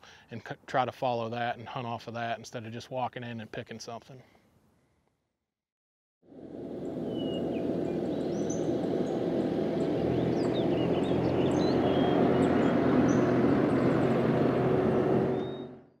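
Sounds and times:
tractor diesel engine running: 6.3 - 16.0
songbirds chirping: 6.8 - 15.9.

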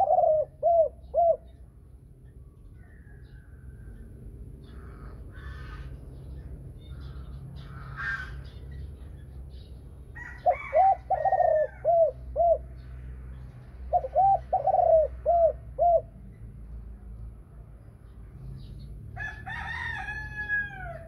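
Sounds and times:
dove cooing: 0.0 - 1.7, 10.2 - 12.8, 13.9 - 16.2.

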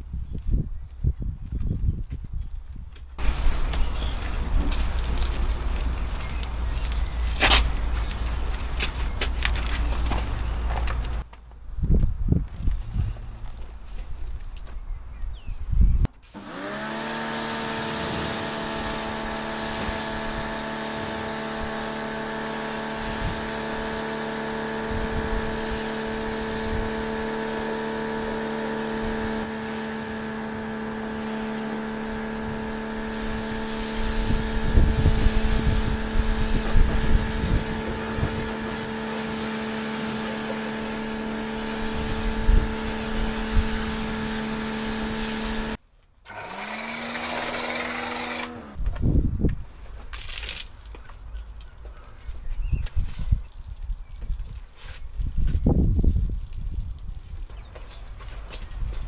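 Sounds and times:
low thumps and rumbles: 0.0 - 16.2
electric motor running: 16.2 - 48.8.

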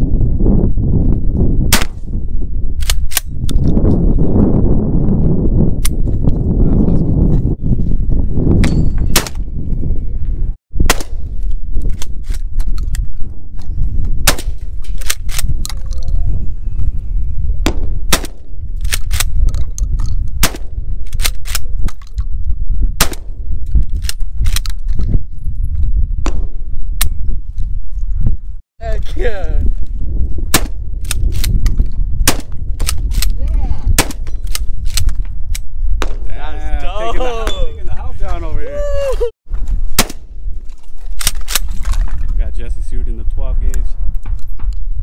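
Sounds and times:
gunshots: 1.7 - 2.0, 10.8 - 11.3, 14.2 - 14.6, 17.7 - 18.5, 30.5 - 30.8, 39.9 - 40.3.

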